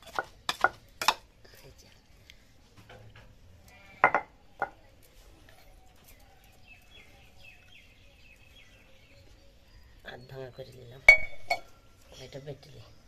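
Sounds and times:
hard knocks on stone slab: 4.0 - 4.7
faint bird chirps: 5.4 - 13.0.

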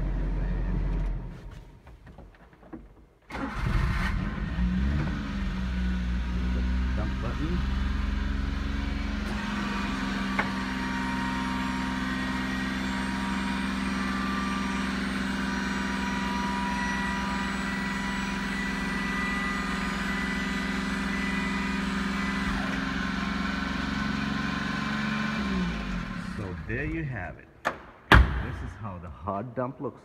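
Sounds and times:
hydraulic lift whine: 3.3 - 27.1
engine running: 3.4 - 27.2.

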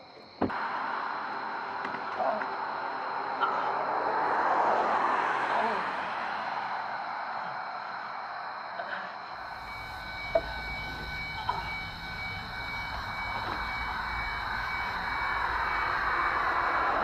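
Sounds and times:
faint held tones: 9.2 - 17.0
low rumble: 9.4 - 17.0.

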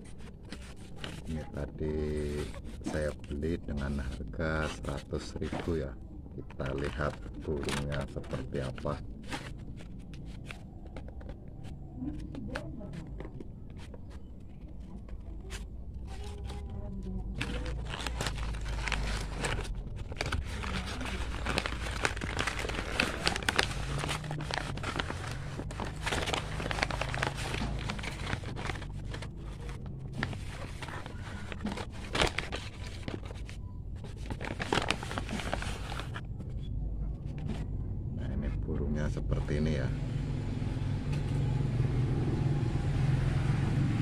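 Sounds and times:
paper bag crinkling: 0.0 - 12.3, 13.6 - 36.5.

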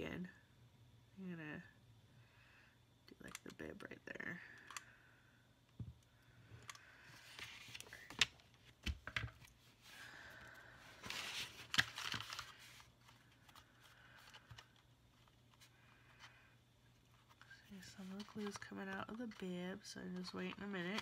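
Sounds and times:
paper rustling and rubbing: 11.0 - 13.6.

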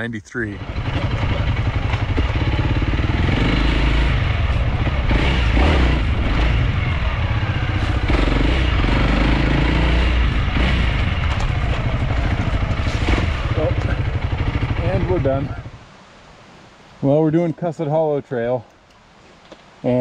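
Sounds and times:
motorcycle engine revving: 0.5 - 15.8.

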